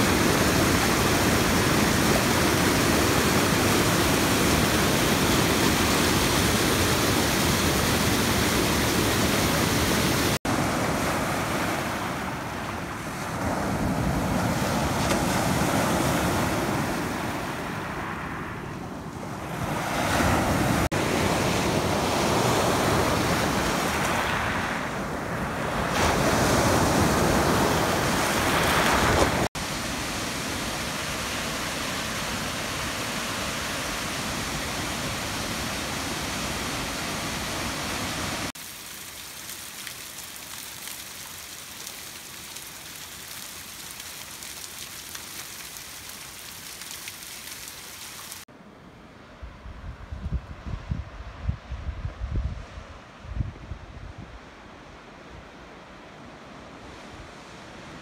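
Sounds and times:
waterfall hissing in gorge: 0.0 - 10.4, 29.5 - 48.5
waterfall rushing into pool: 0.0 - 17.5, 25.8 - 48.5
waves washing over pebbles: 0.0 - 18.2, 19.4 - 48.5.

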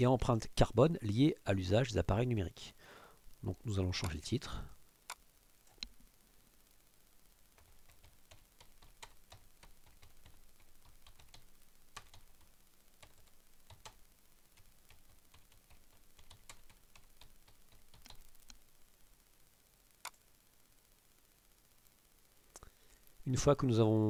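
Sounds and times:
faint keyboard typing: 4.0 - 4.4, 7.5 - 18.6.

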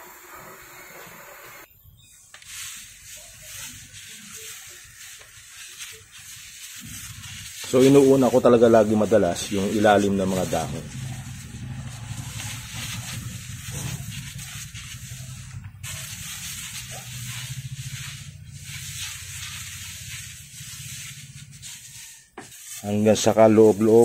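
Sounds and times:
pressure sprayer hissing: 0.0 - 1.7, 2.4 - 24.0
steady low hum: 8.4 - 21.8.

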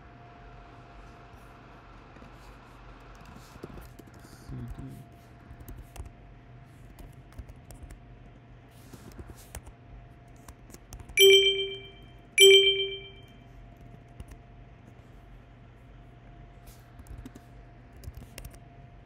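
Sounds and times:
keyboard typing: 10.9 - 13.2
computer alert chimes: 11.2 - 13.2.

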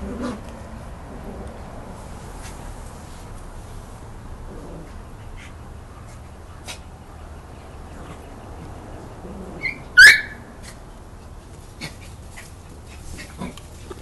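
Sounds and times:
small dog yelping: 9.5 - 10.5.

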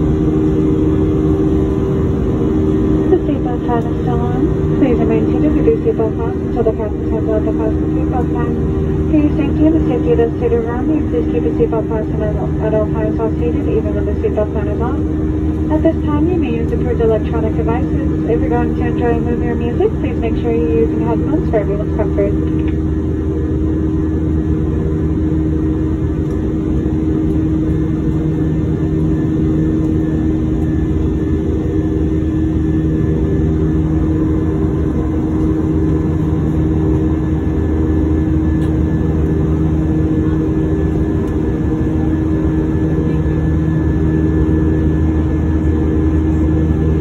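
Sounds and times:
jet engines droning in cabin: 0.0 - 47.0.

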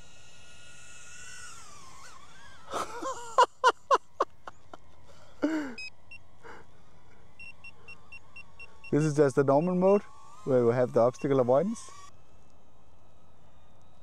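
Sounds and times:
drone propellers whining: 0.0 - 14.0
man laughing: 2.2 - 6.6
man sighing: 5.2 - 5.8.

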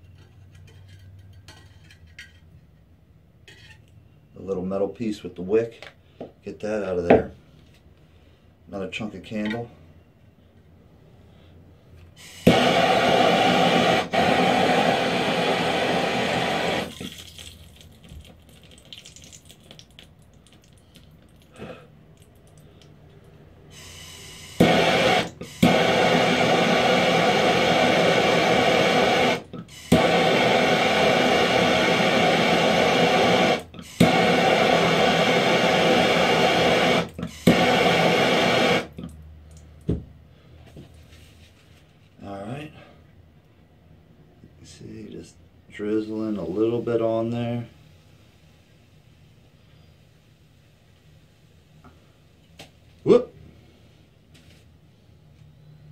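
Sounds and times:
propane torch roaring: 12.2 - 17.2, 23.7 - 39.1.

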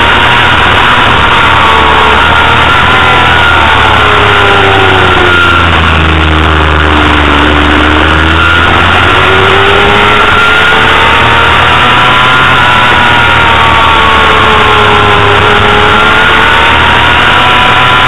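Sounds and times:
motorcycle engine revving: 0.0 - 18.0
rushing wind noise: 0.0 - 18.0.

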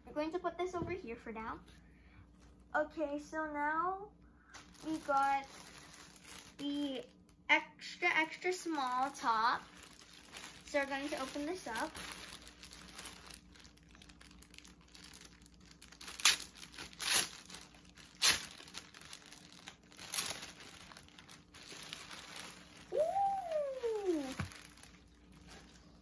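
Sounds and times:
plastic bag crinkling: 4.5 - 26.0.

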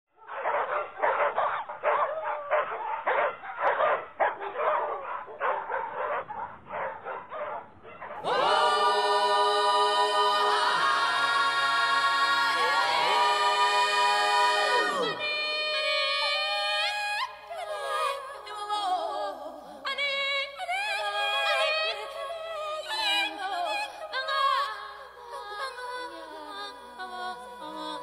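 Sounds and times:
voices singing long chords: 8.2 - 19.6.

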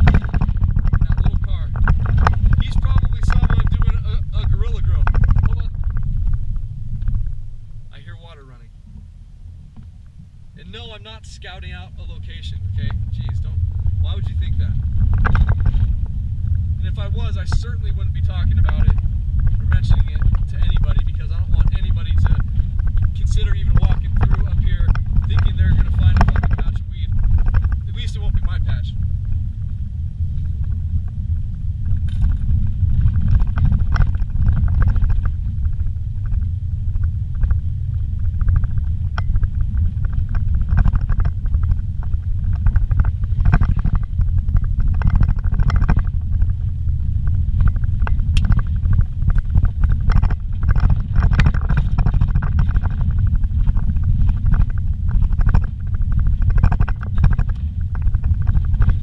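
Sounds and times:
knocks and rattles in car cabin: 0.0 - 7.4, 14.2 - 15.9, 17.0 - 28.9, 38.4 - 46.6, 47.6 - 59.0
engine and tyres rumbling: 0.0 - 59.0.

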